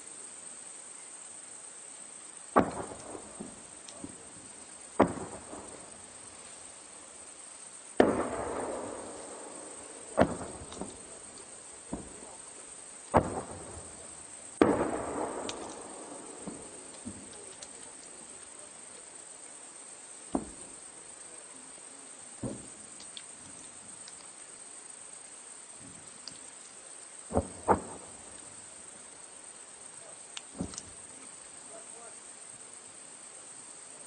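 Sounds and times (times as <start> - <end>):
distant explosions with echo: 2.6 - 6.4, 8.0 - 18.3, 20.3 - 20.8, 27.3 - 28.7.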